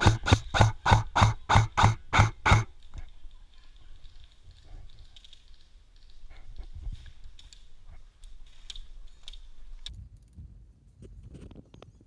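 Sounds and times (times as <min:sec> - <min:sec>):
light clicks and ticks: 0:02.8 - 0:10.4.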